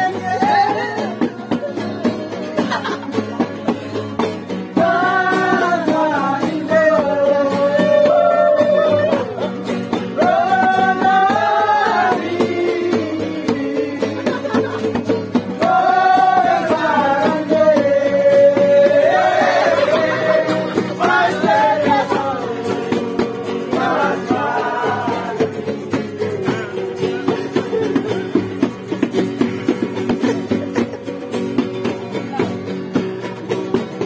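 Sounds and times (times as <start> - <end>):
men singing together: 0.0 - 3.5, 4.6 - 28.0
strummed acoustic guitar: 0.0 - 34.0.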